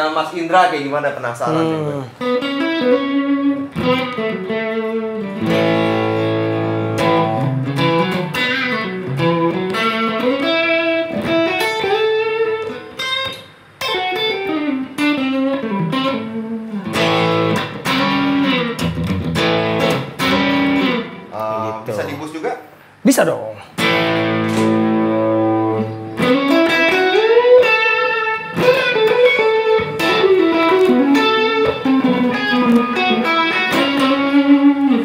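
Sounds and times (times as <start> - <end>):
overdriven electric guitar: 2.0 - 21.4, 23.8 - 35.0.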